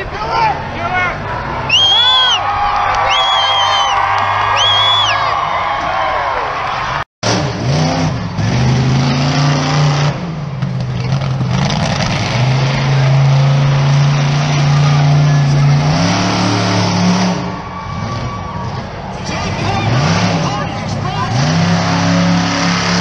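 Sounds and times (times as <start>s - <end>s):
truck engine revving: 6.7s - 23.0s.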